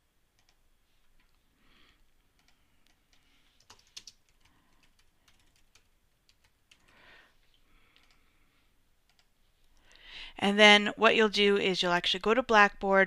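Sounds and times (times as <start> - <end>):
typing on keyboard: 0.4 - 0.6, 2.3 - 7.0, 8.0 - 8.2, 9.0 - 9.3.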